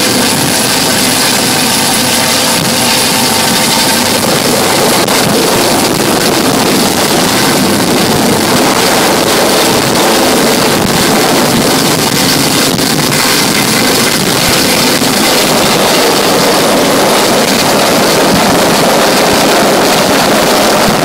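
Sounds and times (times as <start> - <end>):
helicopter and boat engine noise: 0.0 - 21.0
rotor wind buffeting microphone: 0.0 - 21.0.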